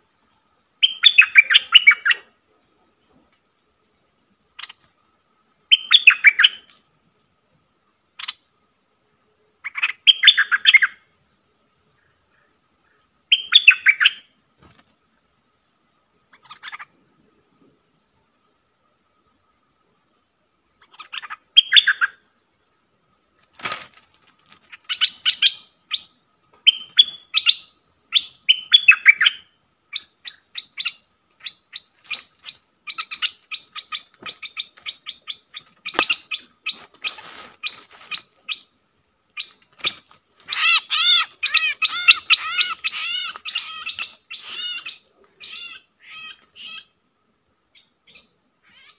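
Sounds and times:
bulbuls chirping and chattering: 16.3 - 17.0, 29.9 - 38.6, 39.4 - 46.9.

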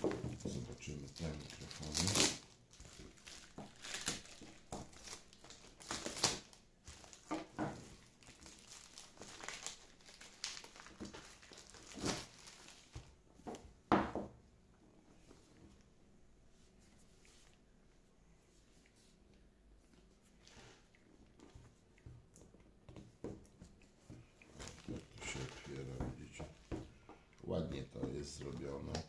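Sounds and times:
packaging crinkling and tearing: 0.5 - 13.1, 24.5 - 26.0.

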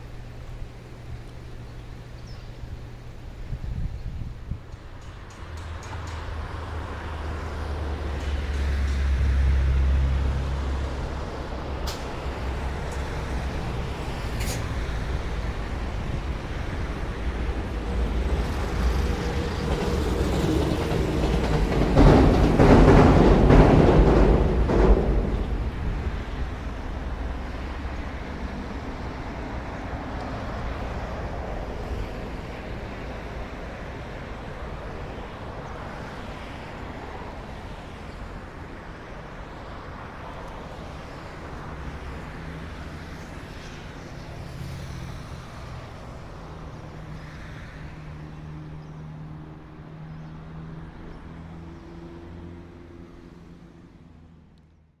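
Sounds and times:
passing vehicles rushing: 0.0 - 54.9.

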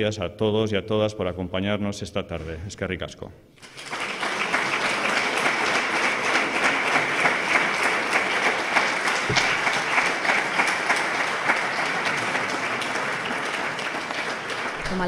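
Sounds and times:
audience applauding: 3.6 - 15.0
low thump: 9.3 - 9.9.

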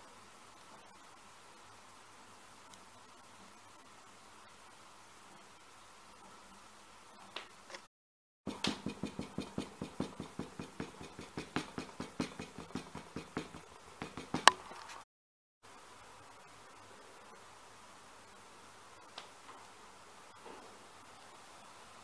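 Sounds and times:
small hammer tapping leather: 8.5 - 14.6.

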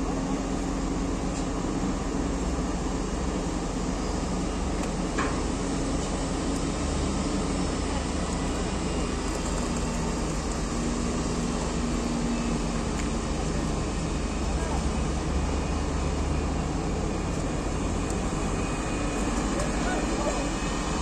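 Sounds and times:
diesel engines idling: 0.0 - 21.0.

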